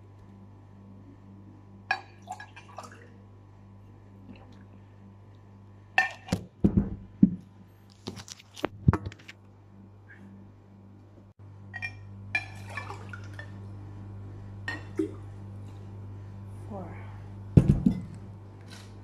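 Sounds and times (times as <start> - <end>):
steady low hum: 0.0 - 19.0
glassware clinking on table: 14.7 - 15.0.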